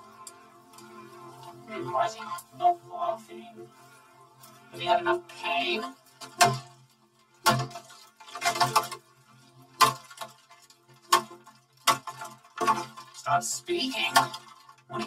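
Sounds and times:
metal rod smashing plastic toy: 7.4 - 9.0.

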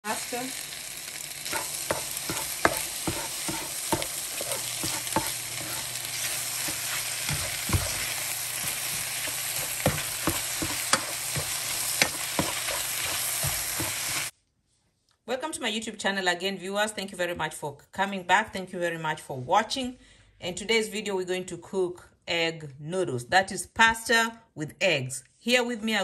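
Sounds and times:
food sizzling in a frying pan: 0.0 - 14.3
spoon scraping a pan: 1.4 - 14.3.

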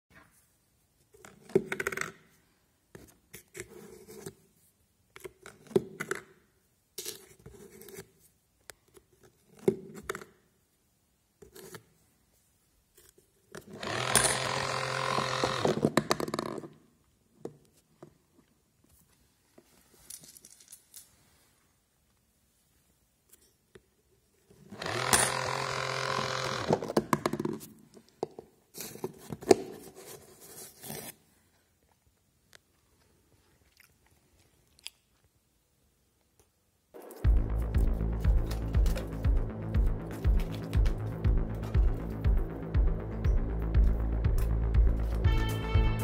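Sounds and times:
small electric motor running: 13.8 - 15.8, 24.8 - 26.8.

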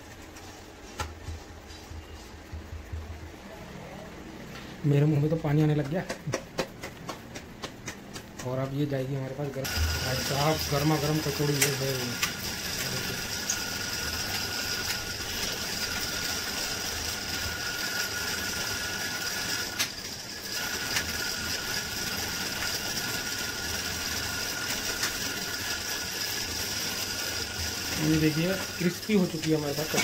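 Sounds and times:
oil sizzling and crackling: 9.6 - 30.0.

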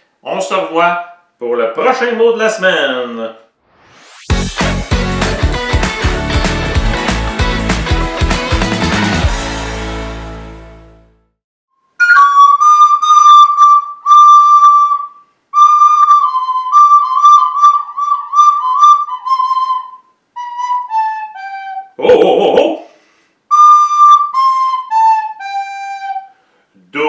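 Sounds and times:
brief burst of noise: 3.6 - 4.4
closing music: 3.7 - 11.3
soprano recorder notes: 11.8 - 22.4, 23.5 - 26.4.

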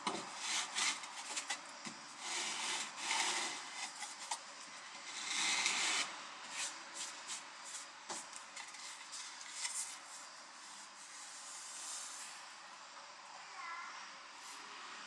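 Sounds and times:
panels rubbing: 0.0 - 4.4, 5.0 - 6.8
board sliding over board: 0.1 - 1.6, 2.2 - 4.2, 5.0 - 6.7.

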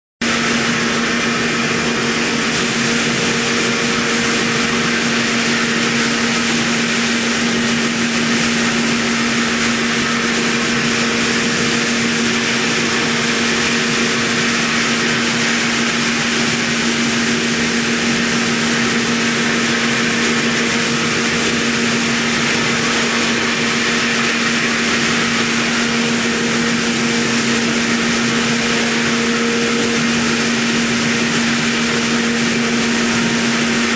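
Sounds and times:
milling machine cutting metal: 0.2 - 33.9.

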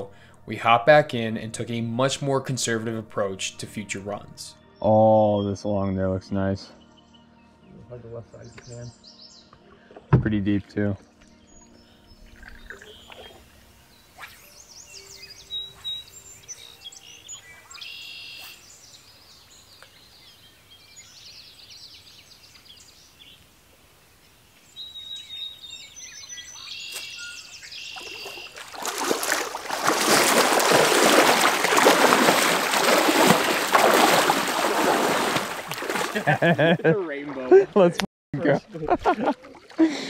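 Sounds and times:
birds chirping and whistling: 4.7 - 6.0, 11.3 - 23.4, 24.6 - 29.4
water splashing from wading: 27.9 - 37.5, 38.7 - 40.0.

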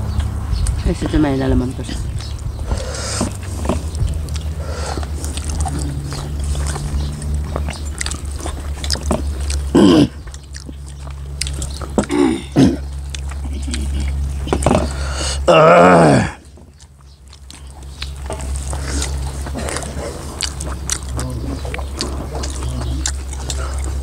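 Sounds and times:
close chewing and mouth sounds: 0.0 - 24.0
low hum: 0.0 - 24.0
short throat sounds: 9.0 - 10.8, 11.9 - 16.4, 18.7 - 24.0.

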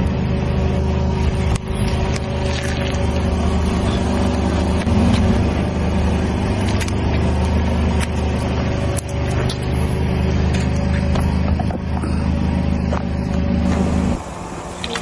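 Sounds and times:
car engine running: 0.0 - 15.0.

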